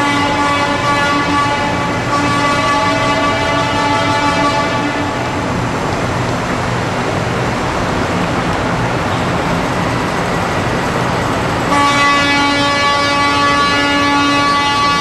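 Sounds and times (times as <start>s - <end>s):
truck air horn blast: 0.0s - 5.4s, 11.7s - 15.0s
semi trucks running: 0.0s - 15.0s.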